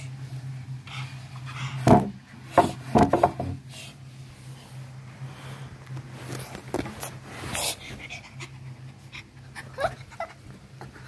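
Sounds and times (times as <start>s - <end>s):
steady low hum: 0.0s - 11.0s
knocks on wooden furniture: 1.8s - 3.6s.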